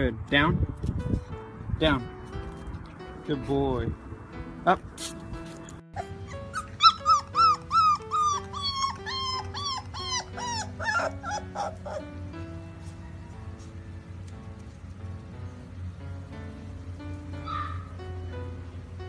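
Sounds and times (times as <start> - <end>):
background music: 0.3 - 19.0
puppy whining yips: 6.0 - 12.1, 17.4 - 18.0.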